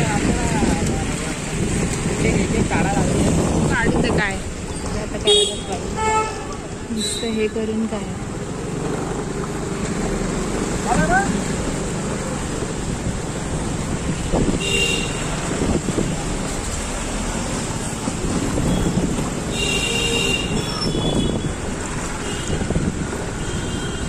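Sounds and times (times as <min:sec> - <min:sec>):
wind buffeting microphone: 0:00.0 - 0:05.2, 0:12.7 - 0:16.7, 0:17.4 - 0:19.6, 0:20.3 - 0:24.0
street traffic: 0:00.0 - 0:24.0.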